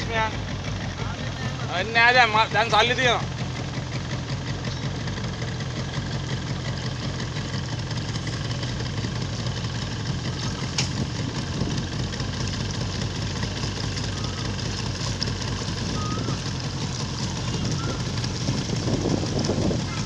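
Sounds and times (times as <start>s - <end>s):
motorboat engine running: 0.0s - 20.0s.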